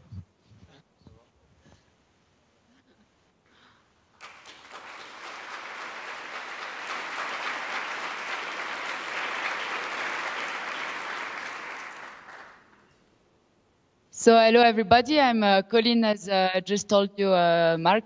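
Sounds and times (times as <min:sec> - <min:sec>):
audience applauding: 0:04.2 - 0:12.9.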